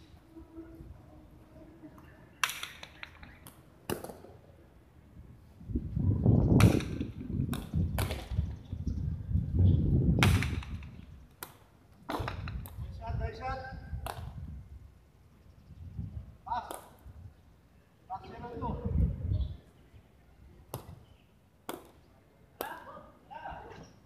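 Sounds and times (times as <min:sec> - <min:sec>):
ball cracking against wall: 0:02.4 - 0:04.3, 0:06.6 - 0:08.4, 0:10.2 - 0:12.8.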